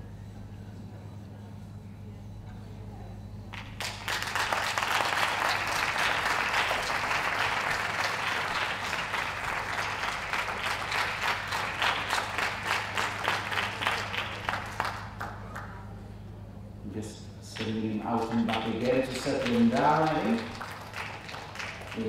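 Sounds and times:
audience applauding: 0:03.5 - 0:15.8, 0:17.6 - 0:22.0.

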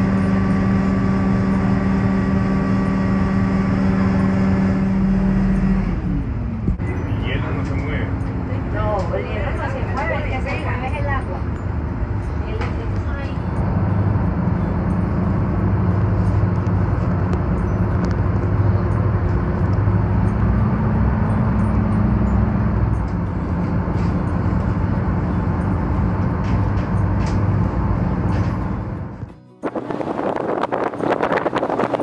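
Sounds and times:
boat engine humming: 0:00.0 - 0:32.0
wind: 0:00.0 - 0:32.0.

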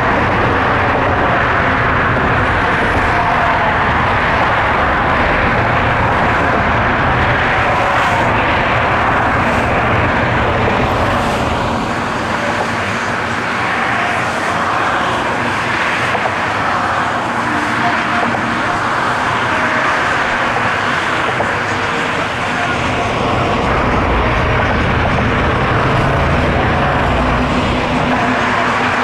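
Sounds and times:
loud rushing noise: 0:00.0 - 0:29.0
engine rumble: 0:18.1 - 0:29.0.

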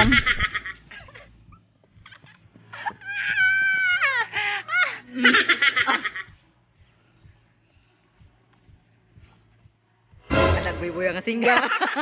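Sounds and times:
men laughing: 0:00.0 - 0:06.4, 0:11.4 - 0:12.0.

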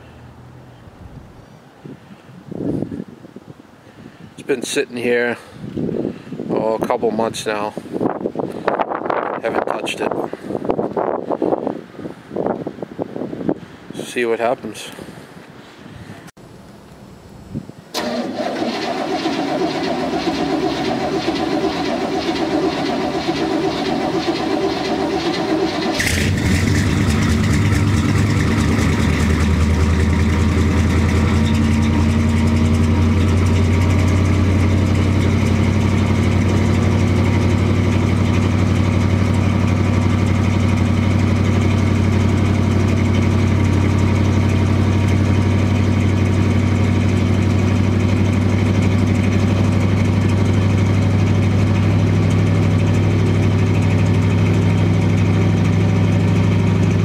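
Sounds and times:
starter motor cranking: 0:18.0 - 0:35.3
car engine running: 0:18.7 - 0:57.0.

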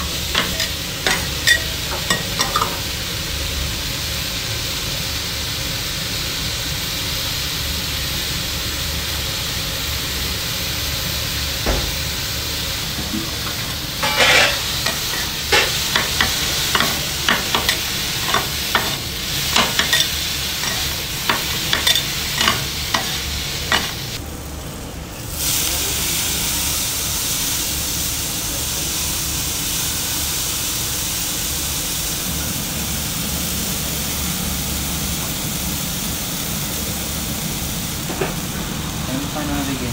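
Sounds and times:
metal scrapers clacking on griddle: 0:00.0 - 0:02.9, 0:13.4 - 0:24.2
food sizzling on a griddle: 0:00.0 - 0:39.9.

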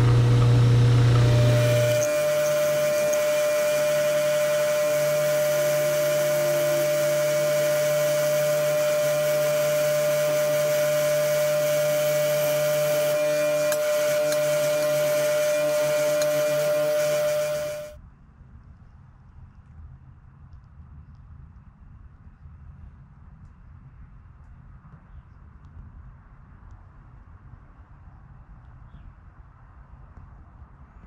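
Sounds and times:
bench grinder motor hum: 0:00.0 - 0:18.0
wire wheel scrubbing metal: 0:00.0 - 0:18.0.

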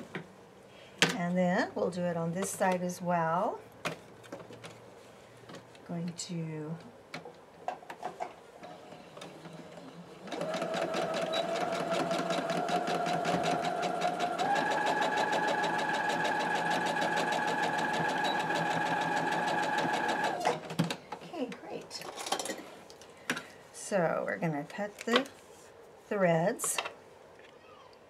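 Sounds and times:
sewing machine stitching: 0:09.2 - 0:20.7.

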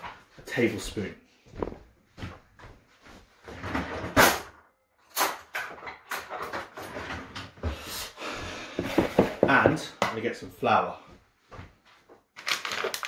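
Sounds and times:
cupboard and drawer opening and shutting: 0:03.4 - 0:04.5, 0:05.2 - 0:07.9
knocks and clatters: 0:03.5 - 0:07.6.

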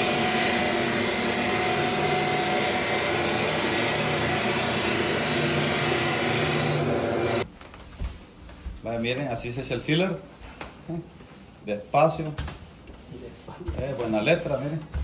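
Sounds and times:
drum floor sander running: 0:00.0 - 0:07.5
sanding drum hissing on wood: 0:08.9 - 0:14.8.

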